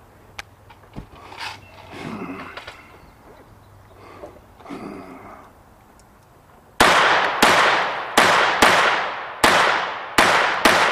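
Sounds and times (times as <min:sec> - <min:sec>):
handgun shots with echo: 0:06.8 - 0:10.9.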